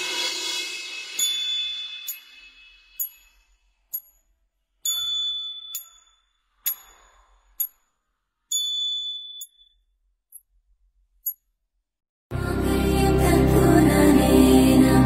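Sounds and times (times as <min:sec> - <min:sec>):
bell-like chime dings: 0:01.2 - 0:03.4, 0:04.9 - 0:06.2.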